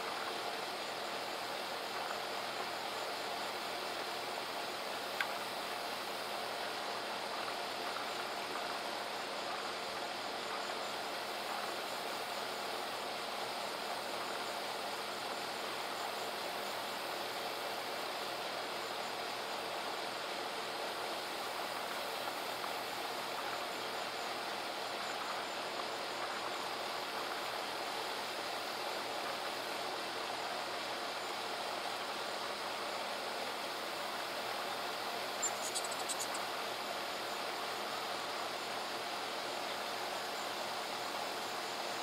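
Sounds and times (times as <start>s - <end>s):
faint high ticking: 35.4s - 36.5s.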